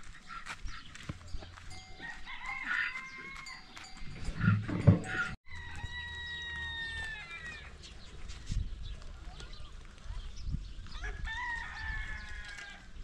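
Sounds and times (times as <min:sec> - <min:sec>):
rooster crowing: 0:02.0 - 0:03.8, 0:05.2 - 0:07.7, 0:11.1 - 0:12.9.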